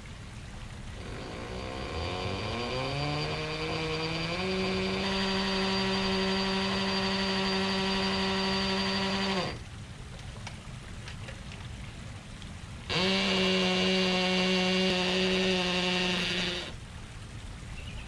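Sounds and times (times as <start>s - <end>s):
hammer drill boring into brick: 1.0s - 9.6s, 12.9s - 16.8s.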